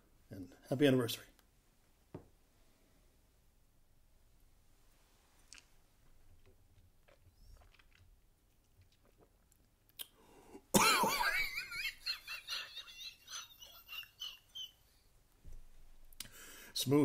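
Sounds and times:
mouth clicks: 9.9s - 10.2s.

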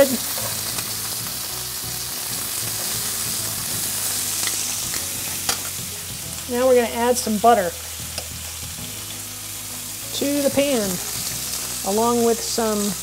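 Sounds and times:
meat sizzling in oil: 0.0s - 13.0s.

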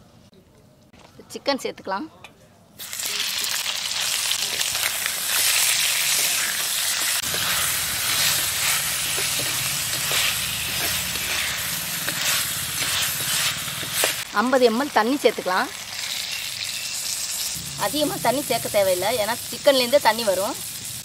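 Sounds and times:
chicken sizzling in hot oil: 2.8s - 21.0s
ladle scraping a pot: 6.0s - 14.2s.

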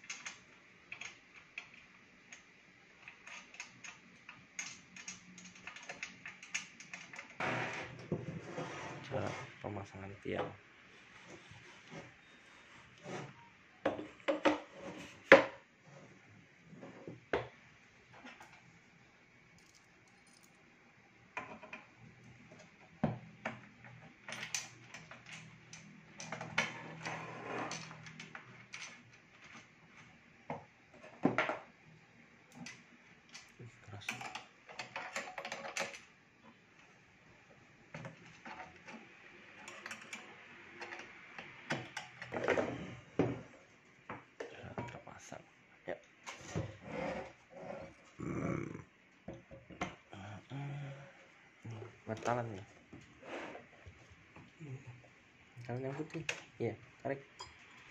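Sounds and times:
metal parts clinking and knocking: 0.0s - 7.4s, 19.6s - 20.6s, 23.6s - 30.2s.

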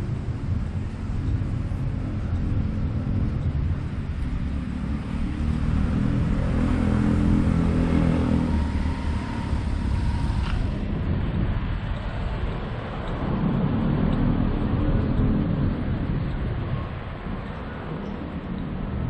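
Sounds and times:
low traffic rumble: 0.0s - 19.0s
vehicle engine running: 0.0s - 19.0s
faint steady whine: 7.8s - 18.8s.

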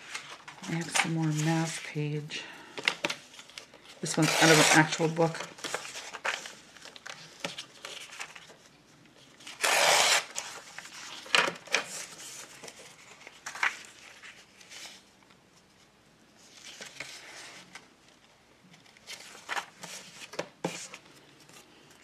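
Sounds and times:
paper ripping: 4.0s - 6.6s, 9.5s - 11.3s.

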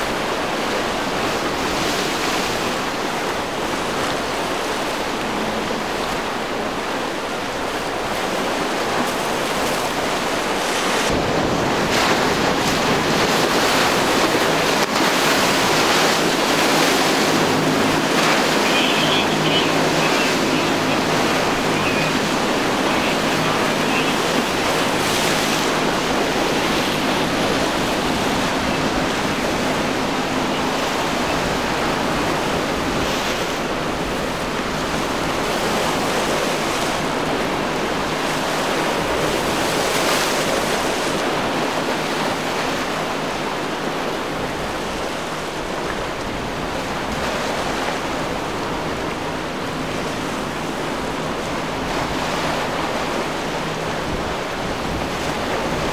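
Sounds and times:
wind on microphone: 0.0s - 42.0s
waves crashing: 0.0s - 55.9s.

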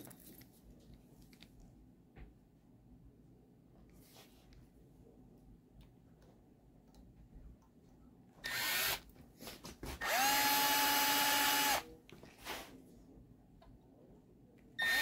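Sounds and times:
electric drill whirring: 8.4s - 9.0s, 10.0s - 11.8s, 14.8s - 15.0s.

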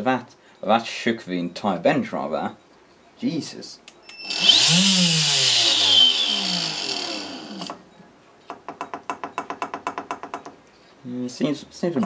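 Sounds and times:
vacuum motor whining: 4.2s - 7.8s.

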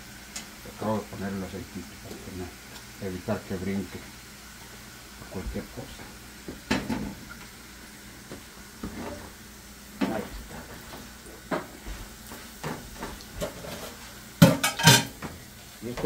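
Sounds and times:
food sizzling in a skillet: 0.0s - 16.0s
spatula scraping a pan: 12.4s - 15.2s.

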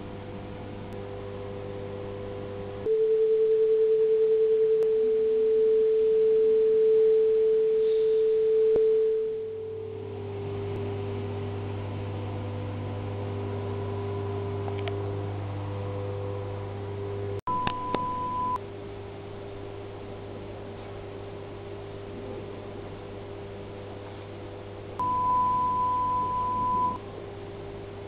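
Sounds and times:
low hum: 0.0s - 20.9s, 21.8s - 27.2s
chord of pure sine tones: 0.9s - 12.4s, 13.0s - 18.6s, 25.0s - 27.0s
loud pulsing single tone: 17.5s - 18.6s, 25.0s - 27.0s.

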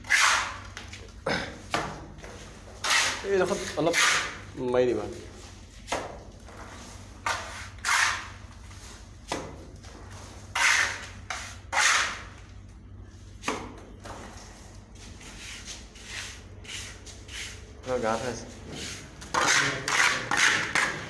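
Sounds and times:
trowel scraping: 0.0s - 0.6s, 2.8s - 4.4s, 6.6s - 9.0s, 10.1s - 12.3s, 15.0s - 21.0s.

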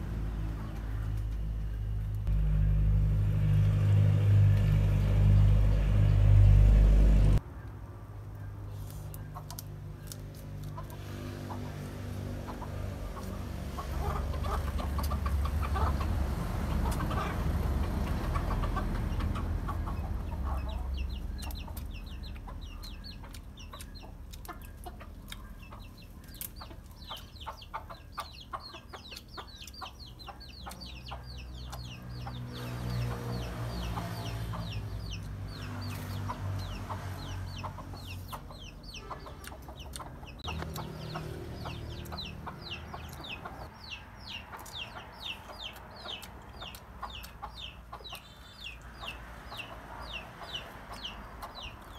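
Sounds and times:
low rumble: 1.2s - 7.4s
chickens clucking: 8.7s - 51.9s
chicks peeping: 8.7s - 51.9s.

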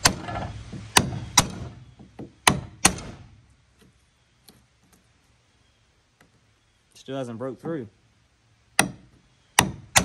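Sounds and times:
hammer striking metal punch: 2.4s - 3.2s.

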